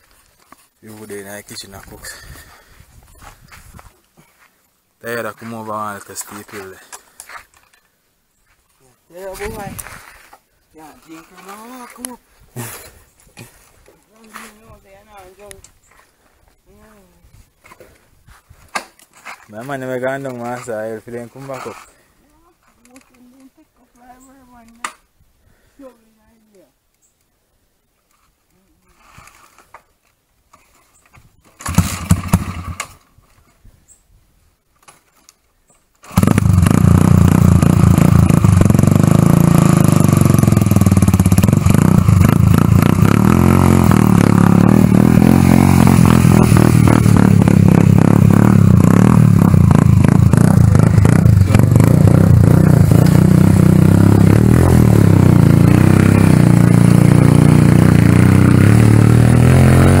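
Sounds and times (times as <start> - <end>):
small motorcycle engine running: 36.1 - 60.0.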